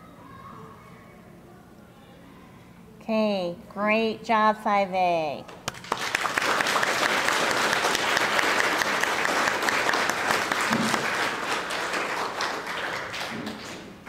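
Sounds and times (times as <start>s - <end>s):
audience applauding: 5.6s - 14.0s.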